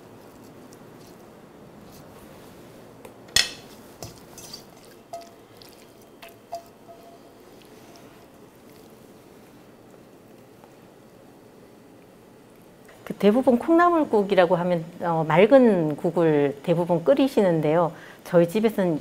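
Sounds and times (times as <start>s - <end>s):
brass bowl ringing: 6.5s - 7.4s.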